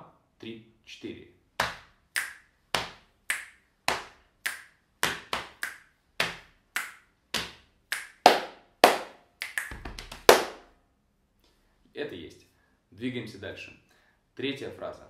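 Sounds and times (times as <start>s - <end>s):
hand claps: 1.6s - 10.7s
thigh slaps: 1.6s - 10.7s
finger snaps: 2.2s - 2.4s, 3.3s - 3.6s, 4.4s - 4.7s, 5.6s - 7.0s, 7.9s - 8.2s, 9.4s - 10.1s.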